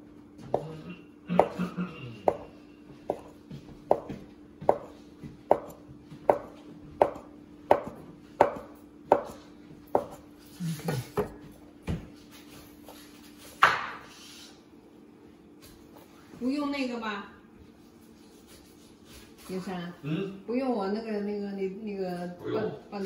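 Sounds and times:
cleaver chopping on wooden board: 1.3s - 1.6s, 2.3s - 2.5s, 3.1s - 3.3s, 3.9s - 10.2s.

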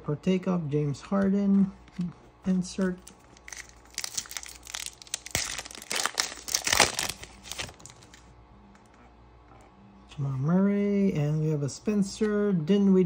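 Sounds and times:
foil wrapper crinkling and tearing: 2.8s - 8.2s.

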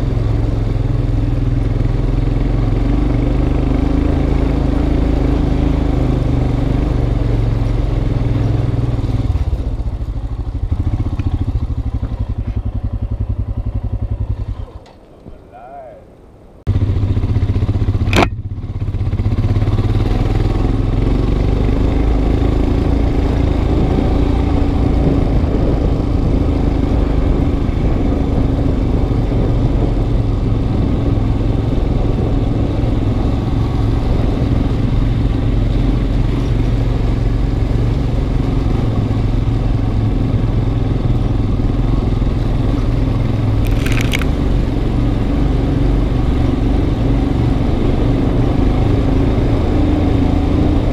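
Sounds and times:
motorcycle engine running: 0.0s - 15.4s, 16.7s - 50.9s
sharp click: 18.0s - 18.4s, 43.6s - 44.4s.

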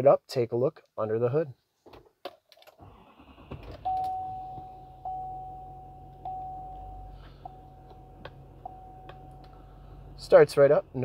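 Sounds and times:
dashboard warning chime: 3.8s - 9.6s
diesel engine idling: 4.4s - 11.0s.

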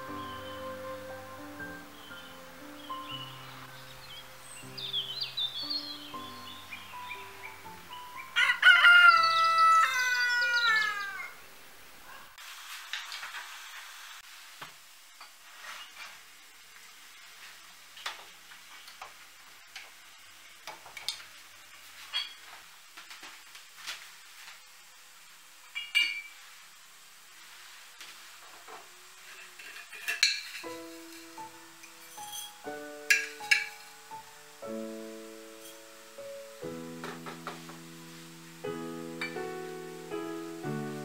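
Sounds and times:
rooster crowing: 8.2s - 11.4s
china and spoon clinking: 22.1s - 22.4s, 25.7s - 26.4s, 29.4s - 34.3s, 35.5s - 35.9s.

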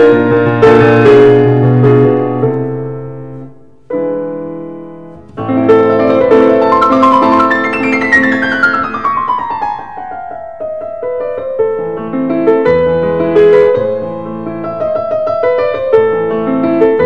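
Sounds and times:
piano music: 4.4s - 17.0s.

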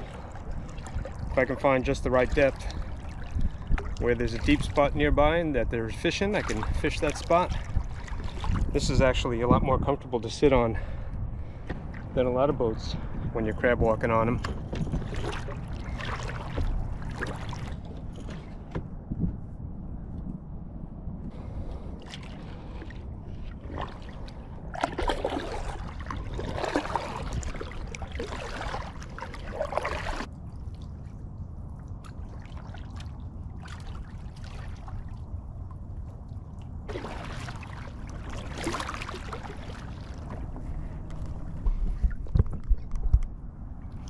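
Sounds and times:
paddle strokes splashing water: 0.0s - 5.0s, 5.9s - 9.0s, 14.0s - 18.9s, 21.3s - 42.8s.

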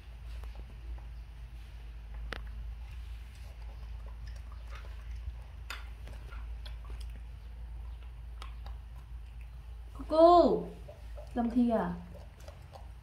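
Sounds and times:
steady low hum: 0.0s - 13.0s
chewing and lip-smacking: 2.1s - 10.0s, 10.7s - 13.0s.

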